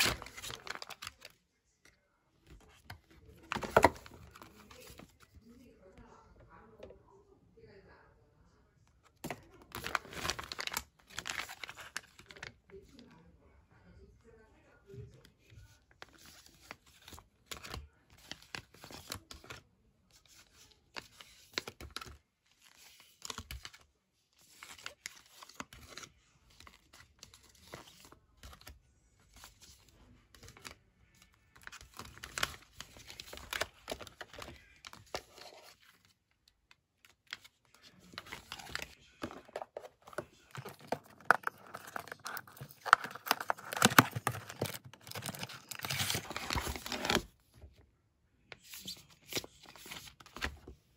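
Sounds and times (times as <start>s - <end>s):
paper box handled: 0.0s - 1.2s, 2.6s - 5.3s, 9.2s - 12.4s, 37.3s - 47.3s
plastic sachets crinkling: 0.0s - 1.4s, 9.2s - 12.6s, 30.4s - 47.3s.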